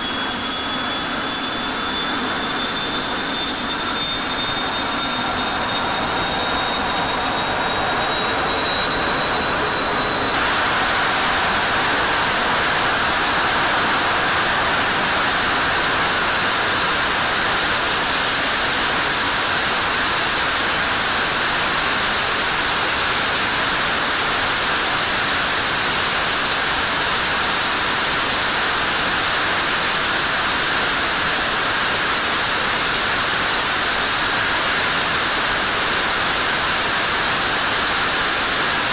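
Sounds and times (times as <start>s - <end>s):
jet engine turbine whine: 0.0s - 38.9s
jet afterburner roaring rush: 3.4s - 17.6s.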